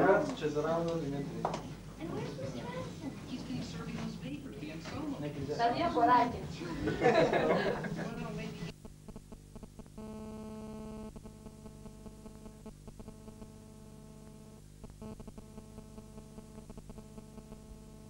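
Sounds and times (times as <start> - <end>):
mains hum: 0.0 - 18.0
electrical buzz: 8.7 - 18.0
crackling clicks: 8.8 - 10.0, 10.9 - 13.5, 14.2 - 17.6.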